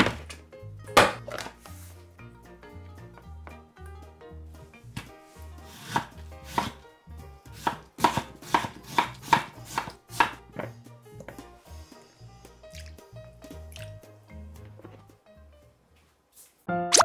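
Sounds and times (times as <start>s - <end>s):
knife chopping on wooden board: 5.7s - 6.8s, 7.6s - 10.7s.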